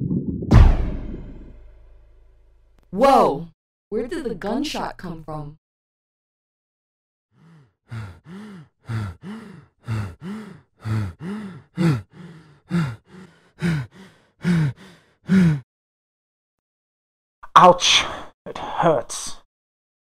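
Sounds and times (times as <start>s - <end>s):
person making wordless vocal sounds: 7.4s - 15.6s.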